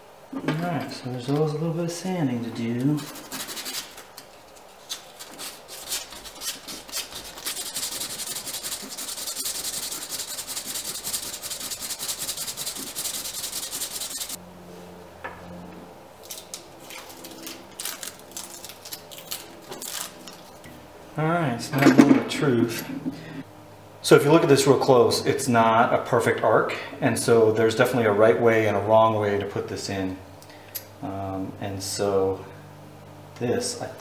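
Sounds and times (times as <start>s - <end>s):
hand sanding scratching strokes: 2.8s - 14.4s.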